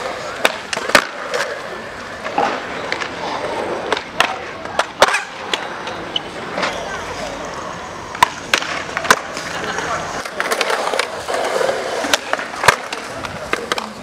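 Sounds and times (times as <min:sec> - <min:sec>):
skateboard clacking on ground: 0:00.0 - 0:14.0
skateboard wheels rolling on concrete: 0:00.0 - 0:14.0.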